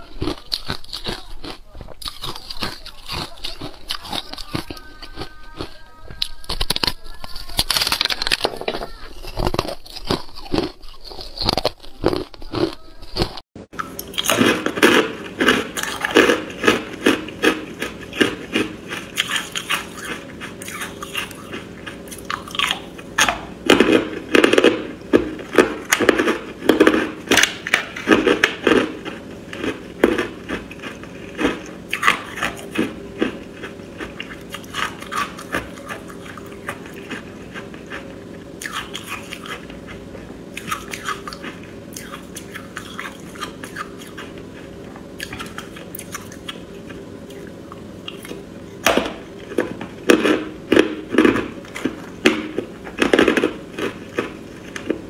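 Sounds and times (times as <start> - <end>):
ice being crunched by teeth: 6.4 - 8.6.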